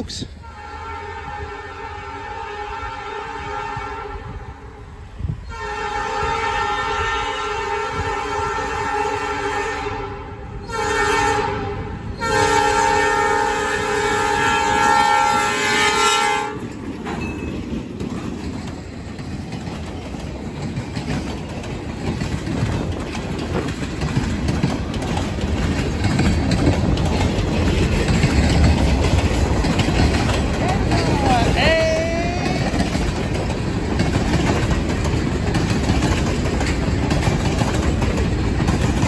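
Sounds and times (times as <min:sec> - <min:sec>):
locomotive horn blasts: 0:00.4 - 0:04.6, 0:05.4 - 0:16.6
train wheels clattering over rail joints: 0:14.2 - 0:39.0.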